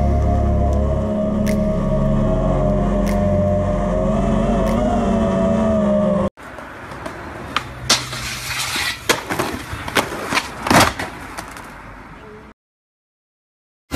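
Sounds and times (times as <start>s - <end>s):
low rumble: 0.0s - 6.3s.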